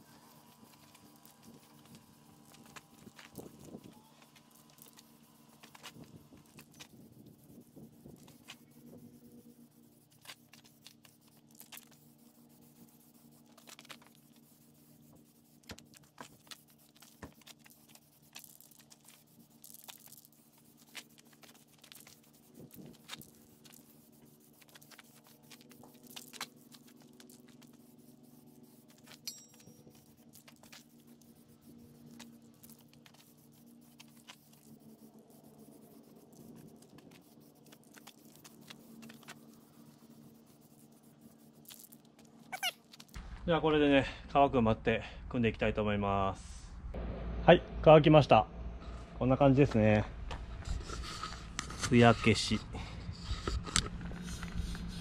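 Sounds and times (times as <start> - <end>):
steady low hum: 43.1 - 55.0
scrapes and light taps: 50.3 - 55.0.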